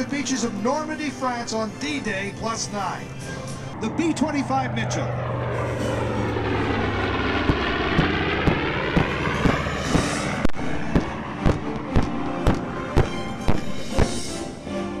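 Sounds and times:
radial engines passing overhead: 0.0 - 15.0
regular sharp thump: 7.3 - 14.3.

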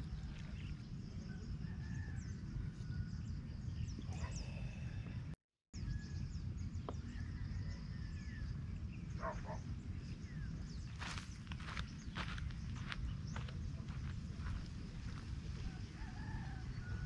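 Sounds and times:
low outdoor rumble: 0.0 - 17.0
birds chirping: 3.5 - 17.0.

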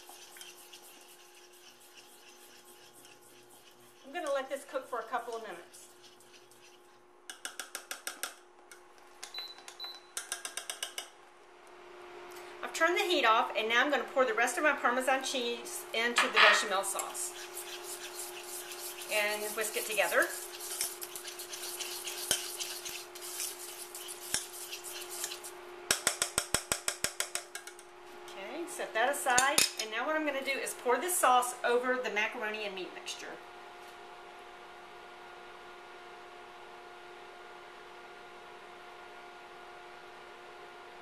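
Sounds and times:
whisk clicking against saucepan: 0.0 - 8.4, 10.2 - 11.1, 16.5 - 27.8
faint steady hum: 0.0 - 41.0
steady low hum: 11.1 - 26.0.

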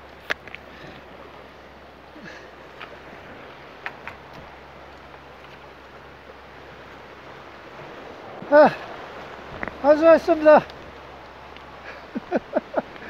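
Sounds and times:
ocean surf against rocks: 0.0 - 13.0.

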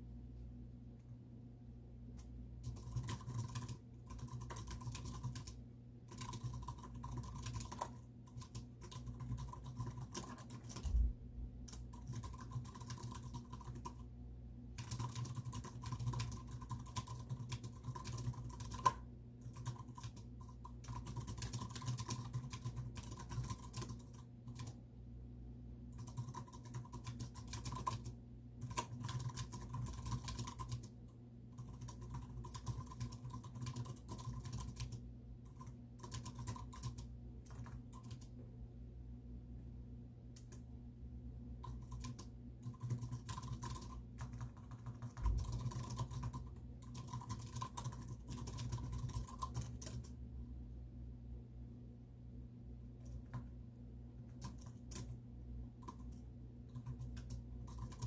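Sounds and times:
typing on a keyboard: 2.6 - 14.1, 14.8 - 24.8, 25.9 - 38.4, 40.4 - 40.6, 41.6 - 50.2, 53.0 - 53.5, 54.2 - 55.2, 55.8 - 58.0.

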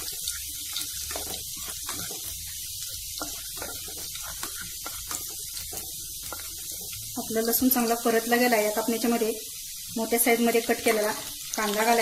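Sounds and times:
wooden spatula stirring: 0.0 - 8.8
garlic sizzling in hot oil: 0.0 - 12.0.

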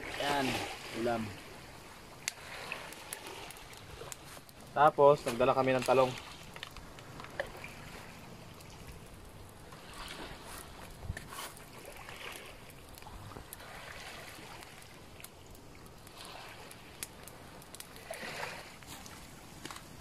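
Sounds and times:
small waves washing in: 0.0 - 20.0.

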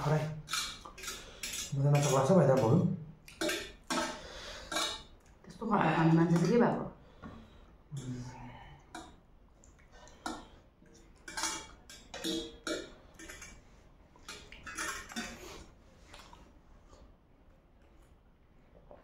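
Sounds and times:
forks clinking on metal plates: 0.4 - 2.8, 11.2 - 13.6, 14.3 - 15.4.

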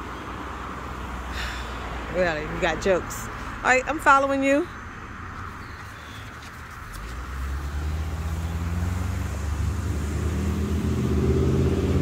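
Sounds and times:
vehicle engine accelerating: 6.7 - 12.0.

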